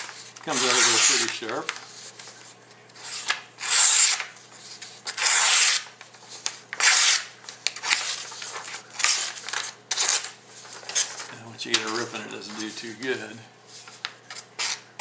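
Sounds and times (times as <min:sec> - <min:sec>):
knife blade slicing paper: 0:00.4 - 0:01.9, 0:03.0 - 0:12.8, 0:14.3 - 0:14.9.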